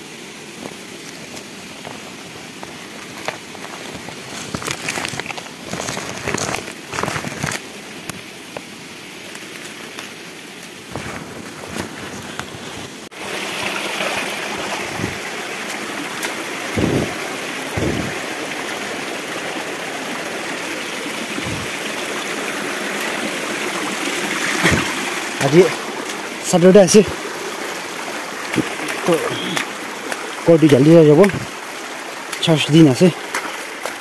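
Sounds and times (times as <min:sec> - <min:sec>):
stream running over rock: 0:00.0 - 0:34.0
dull knocks: 0:16.8 - 0:17.2, 0:17.8 - 0:18.2.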